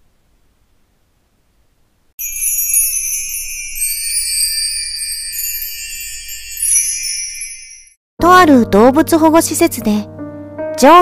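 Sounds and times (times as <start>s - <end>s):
jingle of small bells and chimes: 2.2s - 8.0s.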